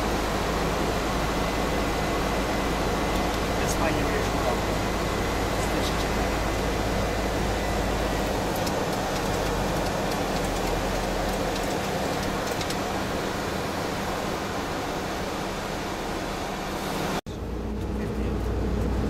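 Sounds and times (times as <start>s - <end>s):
low hum: 0.0s - 19.0s.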